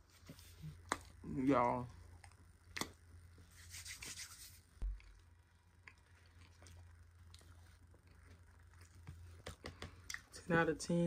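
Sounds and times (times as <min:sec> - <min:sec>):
crackly chewing: 0:04.9 - 0:10.3.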